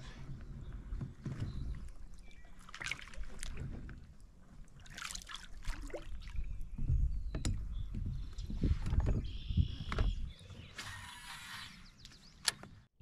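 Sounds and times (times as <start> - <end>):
paddle splashing water: 1.0 - 6.8
low knocks and thumps: 6.5 - 10.4.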